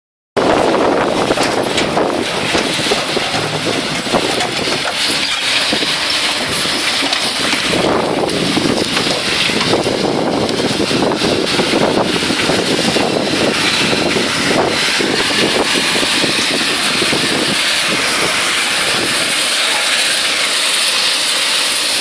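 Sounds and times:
wind buffeting microphone: 0.4 - 19.5
excavator working: 0.4 - 22.0
rubble knocking and scraping: 1.1 - 10.1.

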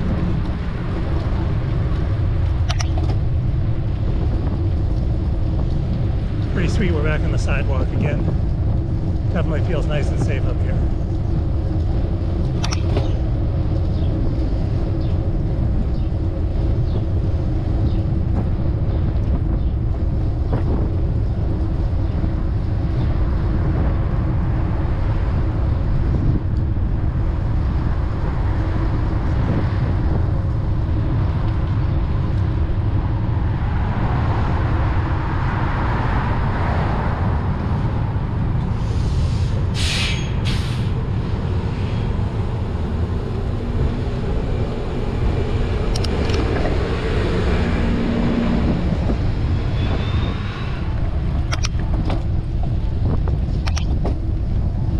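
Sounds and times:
street traffic: 0.0 - 54.9
wind rushing over microphone: 0.0 - 54.9
short sharp hisses: 38.9 - 40.9
vehicle passing: 40.9 - 51.5.

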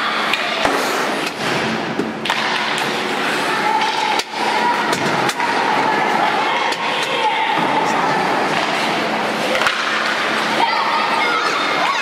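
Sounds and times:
spectators' voices: 0.0 - 12.0
hockey sticks knocking puck: 0.2 - 3.1, 3.8 - 5.7, 6.5 - 10.5.

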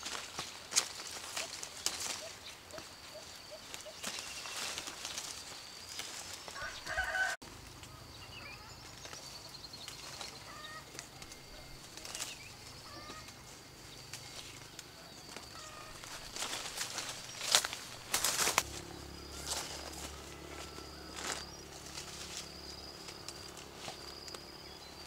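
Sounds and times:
branches and leaves rustling: 0.0 - 25.0
small birds chirping: 0.2 - 25.0
chickens clucking: 10.3 - 13.6.

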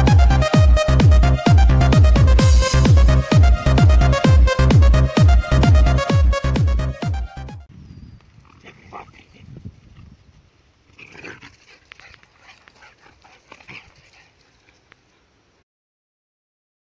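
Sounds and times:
wind rumble: 7.7 - 10.7.

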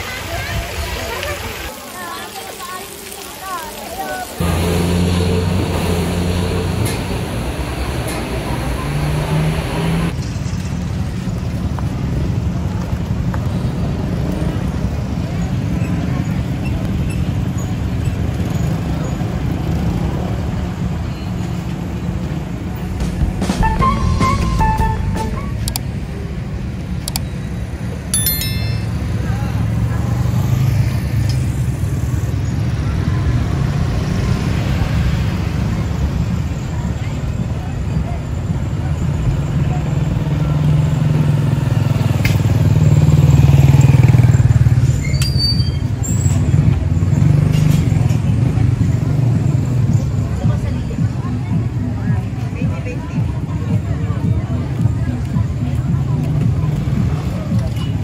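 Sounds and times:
traffic rumble: 0.0 - 58.0
humming engine: 4.4 - 10.2.

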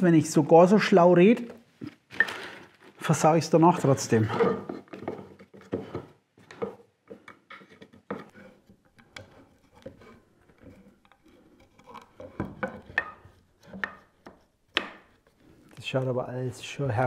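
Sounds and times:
wooden boards knocking and clicking: 11.8 - 15.2.

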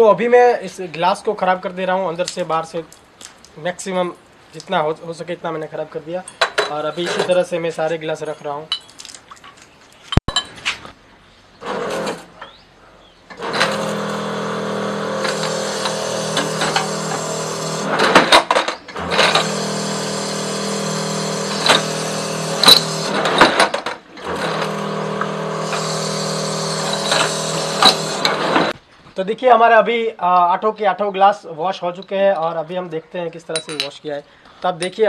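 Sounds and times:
washing machine motor hum: 13.4 - 18.2, 19.0 - 23.3, 24.2 - 28.7
glasses clinking and knocking: 33.6 - 34.0.

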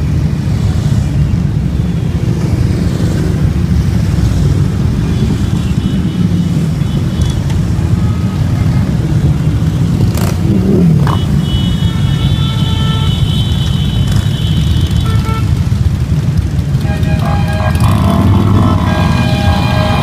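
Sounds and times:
motorcycles rumbling past: 9.8 - 11.3, 15.7 - 20.0
engine note rising and falling: 16.9 - 20.0.

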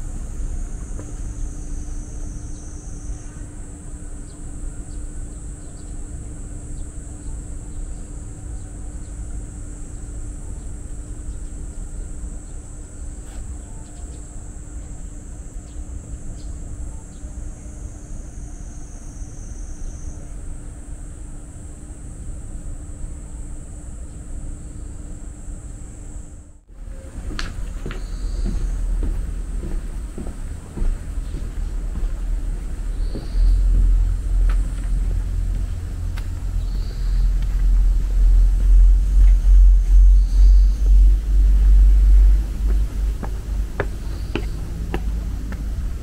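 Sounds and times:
high-pitched insect song: 0.0 - 29.6, 31.0 - 46.0
low hum: 24.2 - 46.0
low rumble: 26.6 - 46.0.

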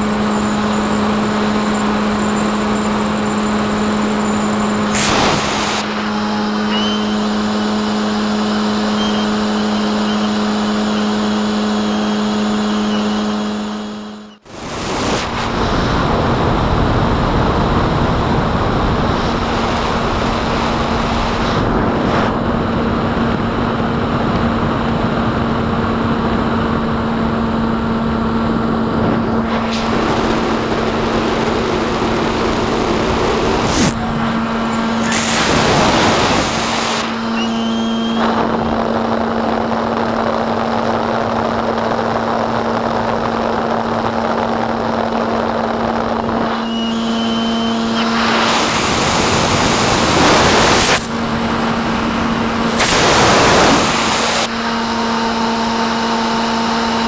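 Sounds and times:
electric motor and propeller hum: 0.0 - 57.0
wind rush: 14.5 - 37.4, 47.8 - 54.5.

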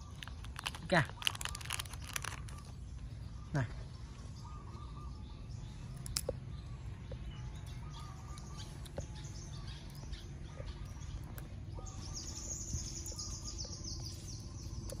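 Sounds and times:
birds chirping: 0.0 - 15.0
high bird trill: 0.0 - 15.0.

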